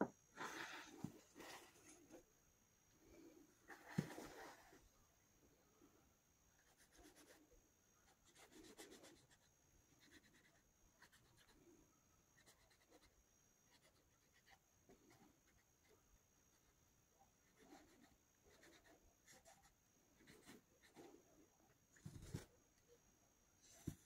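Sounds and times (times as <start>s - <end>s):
marker scratching on fabric: 6.6s - 11.6s, 12.4s - 16.8s, 17.4s - 21.2s.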